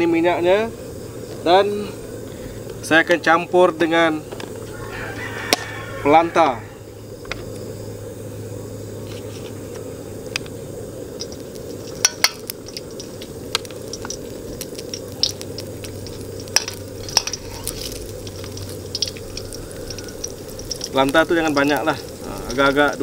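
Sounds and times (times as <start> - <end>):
margarine sizzling in hot oil: 6.9 - 23.0
steady low rush: 9.8 - 23.0.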